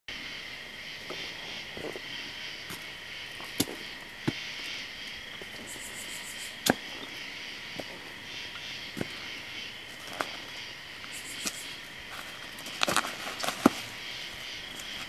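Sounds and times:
crickets trilling: 0:00.1 - 0:15.0.

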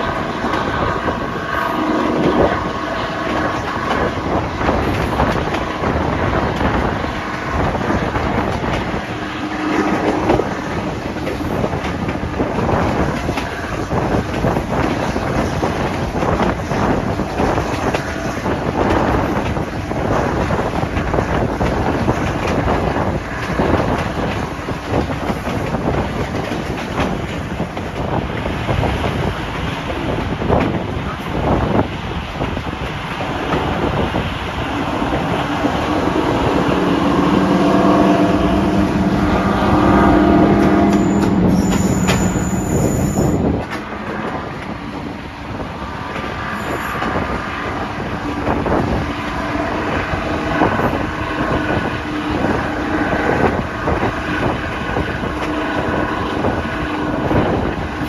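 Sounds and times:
diesel locomotive engines working hard: 0:00.0 - 0:58.0
train wheels clicking on rails: 0:00.0 - 0:58.0
wind on microphone: 0:00.0 - 0:58.0.

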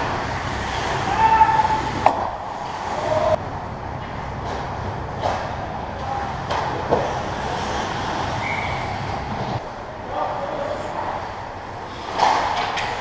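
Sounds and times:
hockey sticks and puck clacking: 0:00.0 - 0:03.4, 0:04.0 - 0:09.6, 0:11.8 - 0:13.0
skates scraping on ice: 0:00.0 - 0:03.4, 0:06.5 - 0:09.6, 0:11.7 - 0:13.0.

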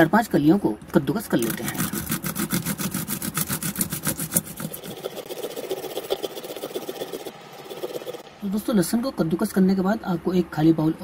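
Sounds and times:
garlic grated on hand grater: 0:01.3 - 0:08.2.

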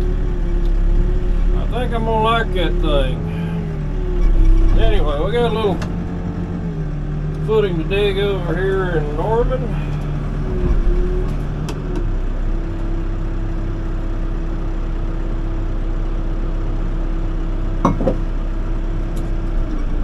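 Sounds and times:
steady whine: 0:00.0 - 0:12.1
excavator diesel engine running: 0:00.0 - 0:20.0.

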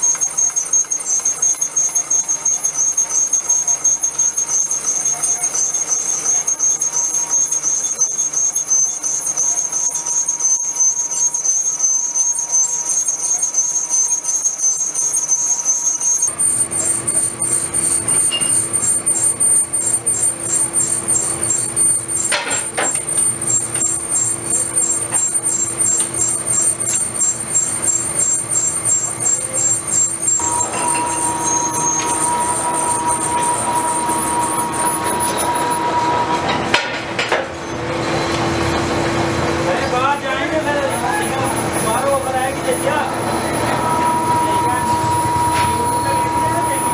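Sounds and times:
lathe tool squealing: 0:00.0 - 0:46.9
workshop machinery running: 0:00.0 - 0:46.9
steady tone: 0:16.1 - 0:37.0, 0:40.5 - 0:46.9.

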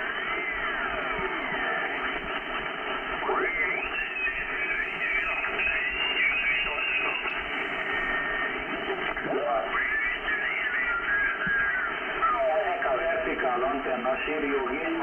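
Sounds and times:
radio static hiss: 0:00.0 - 0:15.0
faint radio voices sliding in pitch: 0:03.0 - 0:15.0.

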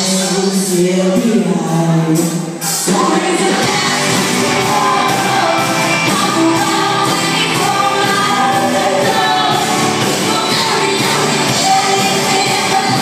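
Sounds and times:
pop-rock band playing: 0:00.0 - 0:13.0
electric guitar: 0:02.5 - 0:13.0
woman singing: 0:02.7 - 0:13.0.

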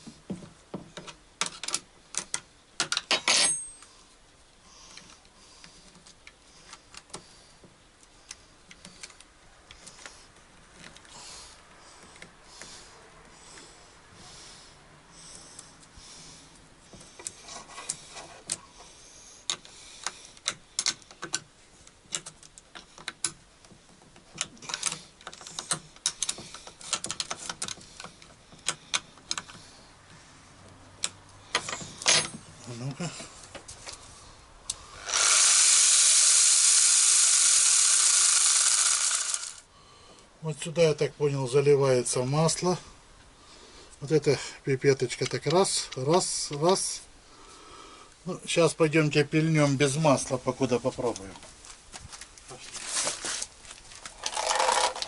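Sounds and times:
angle grinder running: 0:35.0 - 0:39.7.

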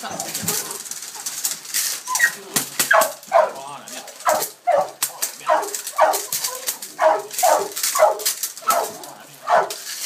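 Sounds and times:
puppy barking: 0:02.9 - 0:03.6, 0:04.2 - 0:09.8.

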